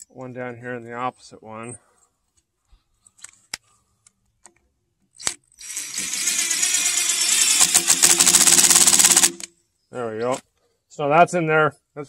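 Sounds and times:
cordless driver motor rattling: 5.6s - 9.5s.

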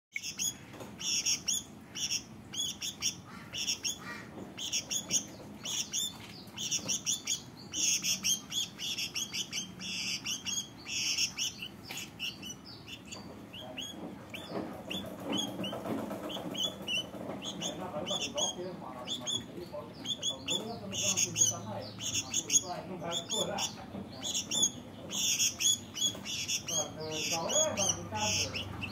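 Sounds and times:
bird chirping: 0.1s - 28.9s.

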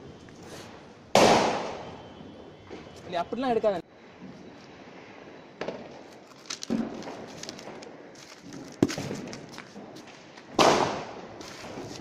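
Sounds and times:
firecracker knocks and pops: 5.6s - 6.0s, 6.6s - 11.9s.

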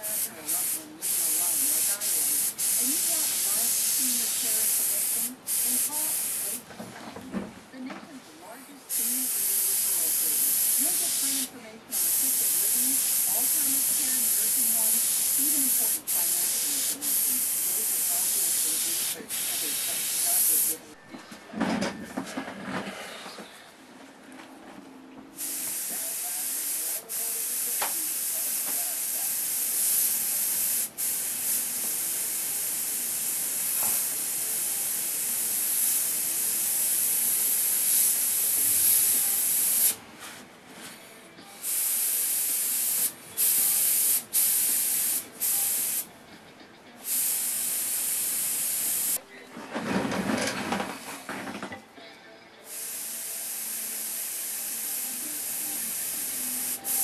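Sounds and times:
airbrush hissing: 0.0s - 6.6s, 8.9s - 20.8s, 25.4s - 40.0s, 41.6s - 46.1s, 47.0s - 49.2s, 52.7s - 57.0s.

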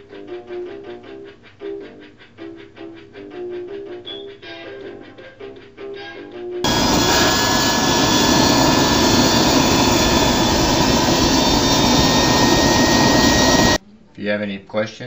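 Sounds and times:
music: 0.0s - 6.7s, 13.8s - 15.0s
jet turbine roaring: 6.6s - 13.8s
turbine whine: 6.6s - 13.8s.

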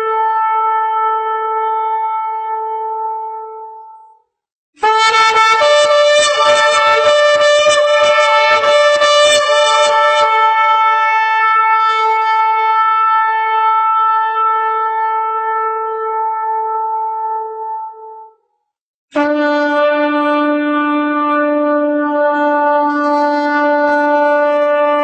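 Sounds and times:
horn blast: 4.8s - 18.3s, 19.2s - 25.0s.

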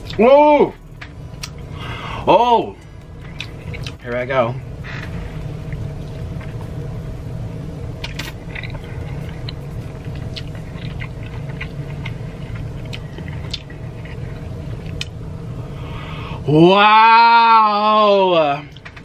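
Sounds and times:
steady low hum: 0.0s - 19.0s
wet chewing and sucking: 8.0s - 15.2s.

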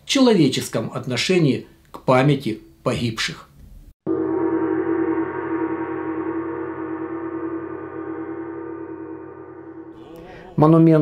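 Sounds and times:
gong ringing: 4.1s - 10.4s.

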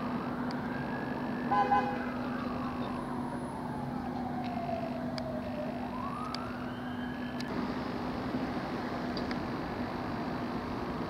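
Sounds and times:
siren wailing: 0.0s - 7.5s.

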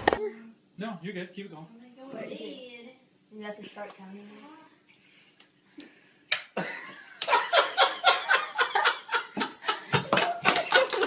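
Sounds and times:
girl laughing hard: 6.6s - 11.0s.

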